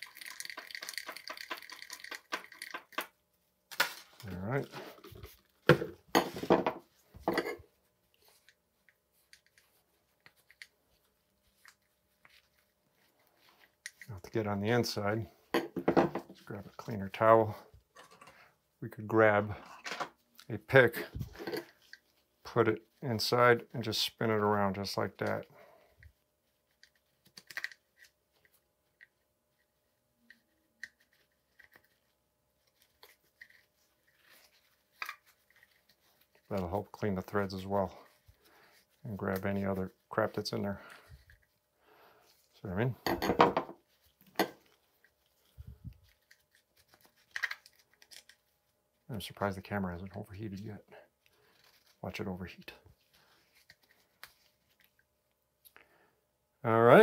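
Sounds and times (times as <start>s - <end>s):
small handling ticks: 43.9s - 48.5s.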